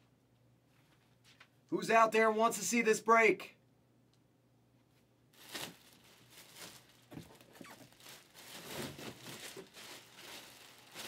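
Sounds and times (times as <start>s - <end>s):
rustling and crinkling: 4.8s - 11.0s.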